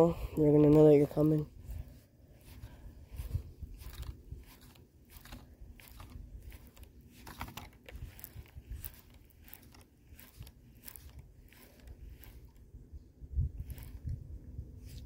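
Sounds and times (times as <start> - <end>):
fishing reel clicking: 13.6 - 14.2.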